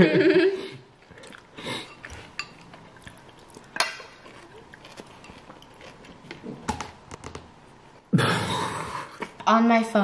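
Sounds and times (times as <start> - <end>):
eating sounds: 0.9 - 6.7.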